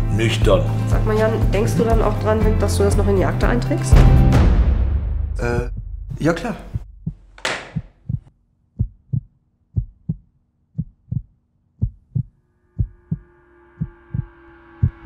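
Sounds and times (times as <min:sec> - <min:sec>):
heartbeat-like low thumps: 0:01.9 - 0:15.0
steady held tone: 0:12.2 - 0:15.0.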